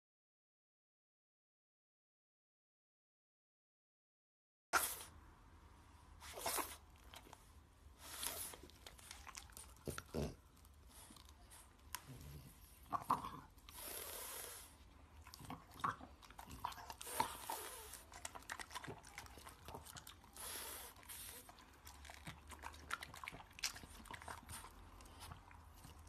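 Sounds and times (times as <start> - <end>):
dog chewing wetly: 6.3 - 26.0.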